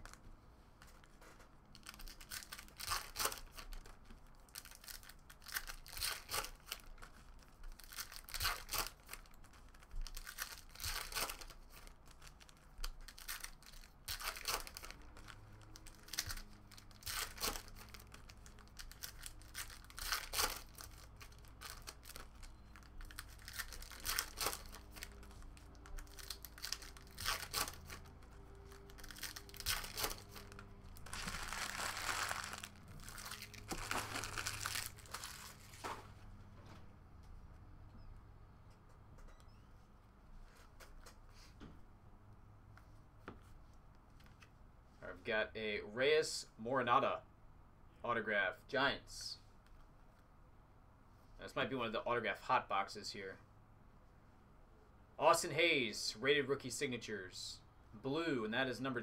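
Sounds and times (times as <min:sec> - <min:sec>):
wrappers crinkling: 0:01.7 - 0:35.9
foil packs tearing: 0:01.8 - 0:03.8, 0:04.5 - 0:06.9, 0:07.7 - 0:15.0, 0:15.8 - 0:35.8.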